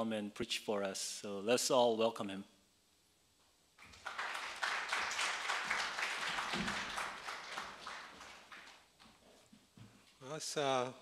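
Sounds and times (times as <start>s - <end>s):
congregation applauding: 3.8s - 9.0s.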